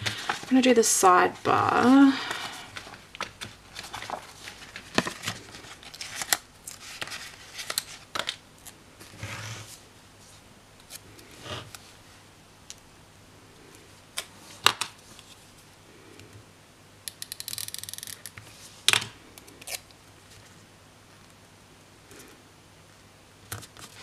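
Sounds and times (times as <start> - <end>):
paper pages rustling: 0.0 - 0.7, 1.3 - 11.9
faint speaker hum: 0.0 - 17.0.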